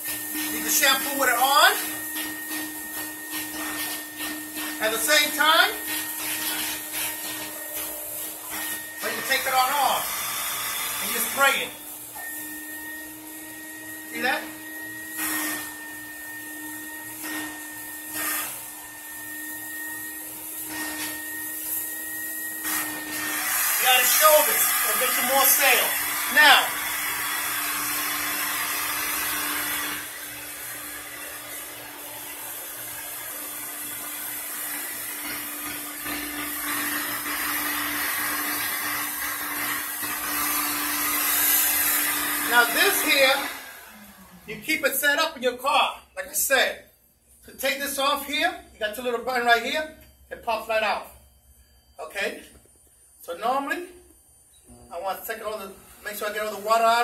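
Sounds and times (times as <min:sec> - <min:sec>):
vacuum cleaner whining: 0:00.0 - 0:45.4, 0:54.6 - 0:57.0.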